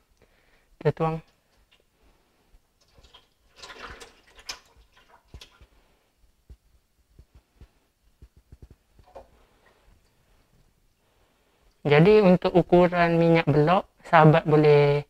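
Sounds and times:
oil pouring into a pot: 2.8s - 5.7s.

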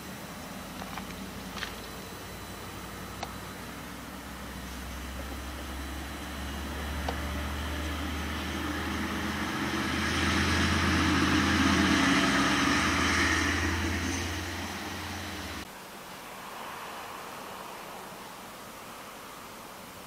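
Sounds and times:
steady low hum: 0.0s - 20.0s
diesel locomotive passing: 5.2s - 15.6s.

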